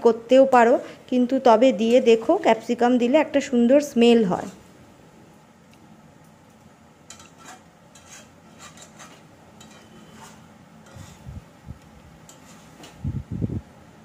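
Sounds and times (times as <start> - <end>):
metal spatula scraping a pan: 4.3 - 4.7, 7.1 - 11.4, 12.2 - 13.0.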